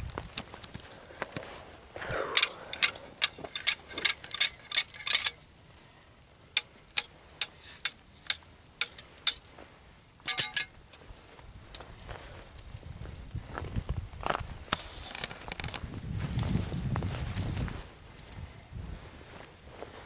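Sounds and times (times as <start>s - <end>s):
metal trap chain rattling: 2.3s - 9.6s, 10.2s - 11.0s
sharp metallic clicks: 2.4s - 5.5s, 6.3s - 9.6s, 10.3s - 10.8s.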